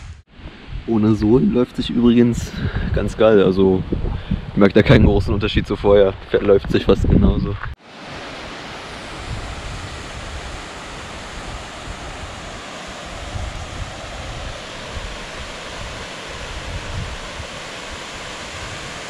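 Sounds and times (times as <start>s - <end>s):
wind buffeting microphone: 0.0s - 7.8s, 9.0s - 19.0s
mountain stream rushing: 7.8s - 19.0s.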